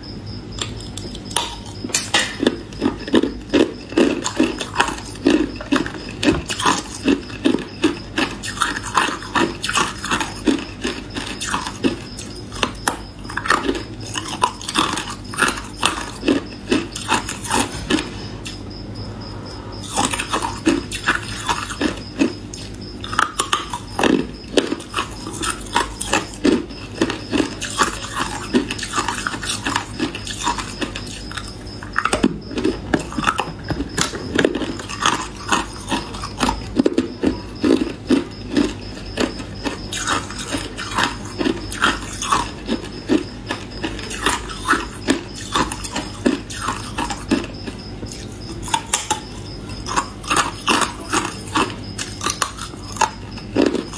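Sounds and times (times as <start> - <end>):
person chewing hard ice: 0.5 - 53.9.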